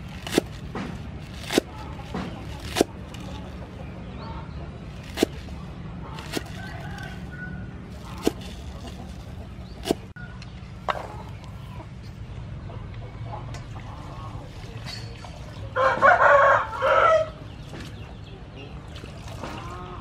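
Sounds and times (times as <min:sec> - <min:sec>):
cleaver chopping on wooden board: 0:00.2 - 0:03.2, 0:05.0 - 0:05.4.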